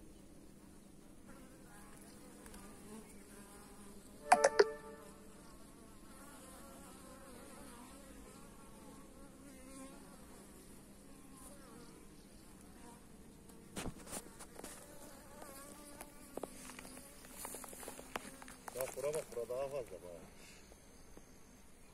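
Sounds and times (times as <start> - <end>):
honeybees humming: 0.0 - 21.9
loud buzz of passing bee: 1.2 - 18.7.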